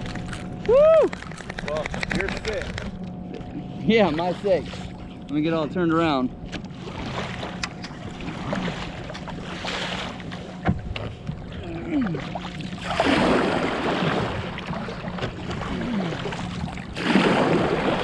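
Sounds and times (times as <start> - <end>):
water rushing along hull: 0.0 - 18.0
kayak paddle strokes in water: 6.7 - 18.0.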